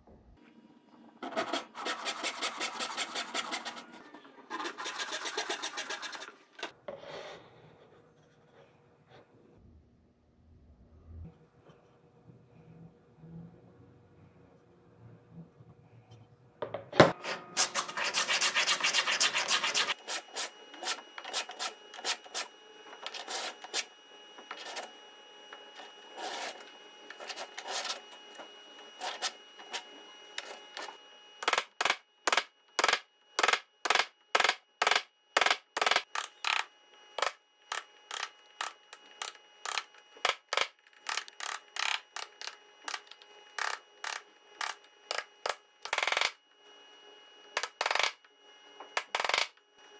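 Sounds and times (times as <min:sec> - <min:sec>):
loud rasping scrape: 0:01.4 - 0:06.4.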